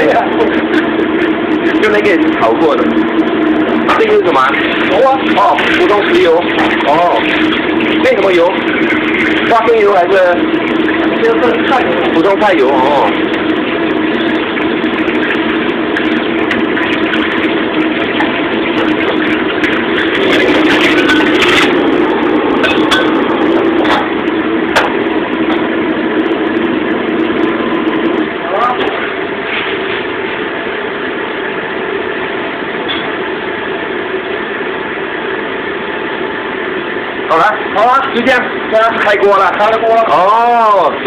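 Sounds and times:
gas wok burner and exhaust hood: 0.0s - 41.0s.

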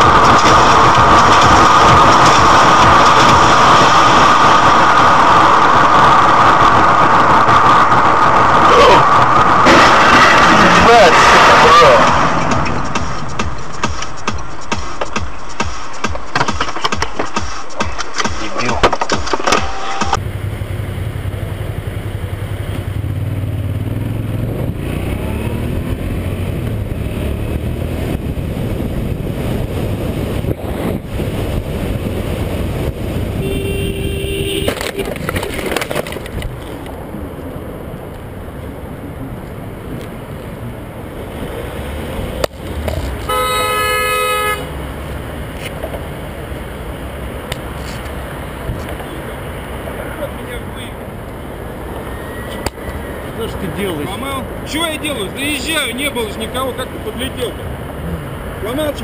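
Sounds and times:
vehicle engine and road noise: 0.0s - 59.0s
vehicle horn blasts: 33.3s - 35.1s, 43.2s - 44.8s.

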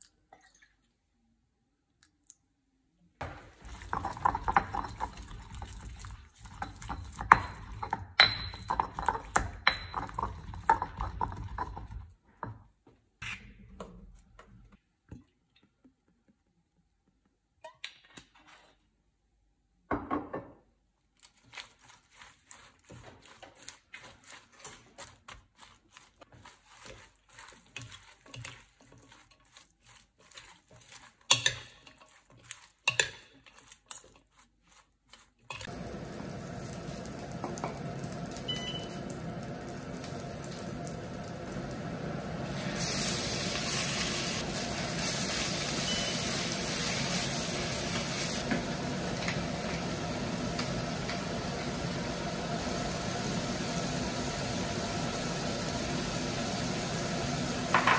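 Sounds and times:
cookware and utensils clinking: 3.2s - 12.6s, 23.5s - 25.3s, 26.8s - 34.4s, 35.4s - 35.9s, 37.0s - 39.4s, 45.6s - 49.6s.

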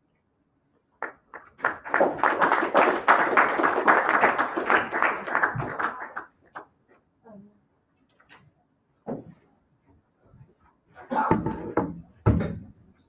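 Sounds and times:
students applauding: 1.0s - 6.6s.

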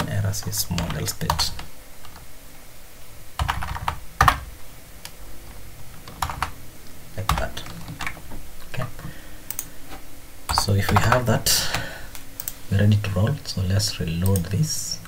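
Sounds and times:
typing on computer keyboard: 3.4s - 4.5s, 6.0s - 6.6s.

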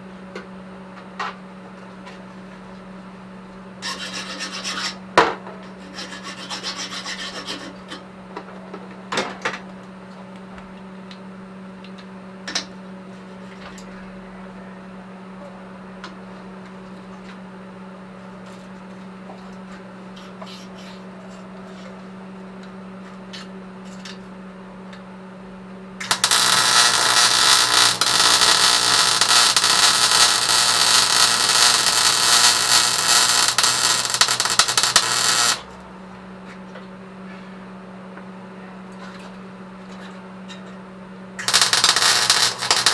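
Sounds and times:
steady low hum: 0.0s - 42.9s
arc welding crackle: 26.0s - 35.8s, 41.4s - 42.9s
metal scraping: 26.1s - 35.6s, 41.5s - 42.9s.

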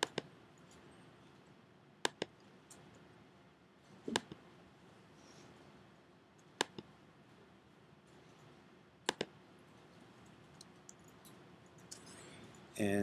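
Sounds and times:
faint room hiss: 0.0s - 13.0s
mouse button clicks: 2.0s - 2.3s, 9.1s - 9.3s.

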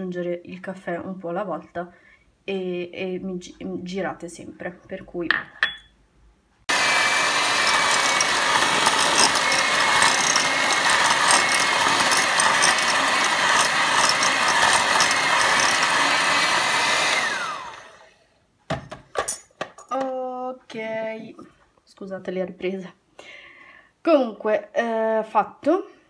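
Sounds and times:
electric hand mixer whine: 6.7s - 18.1s
knock: 18.7s - 19.1s.

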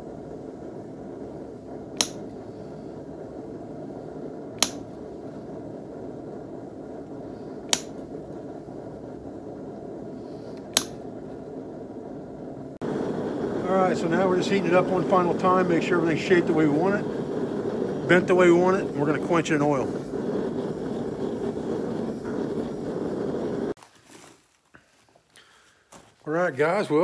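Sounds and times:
steady low rumble: 0.0s - 23.8s
hammer striking steel punch: 2.0s - 2.3s, 4.6s - 5.0s, 7.7s - 8.0s, 10.7s - 11.0s.

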